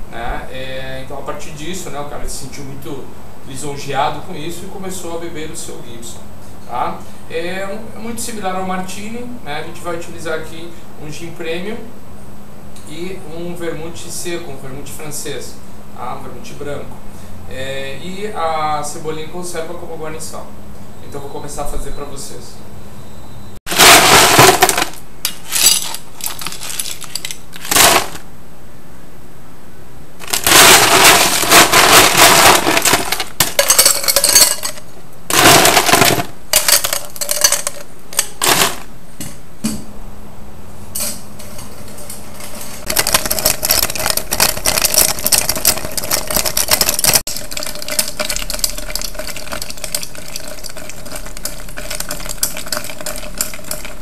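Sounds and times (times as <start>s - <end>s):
ice cubes clattering and clinking: 23.7s - 28.2s, 30.2s - 38.9s, 42.9s - 54.0s.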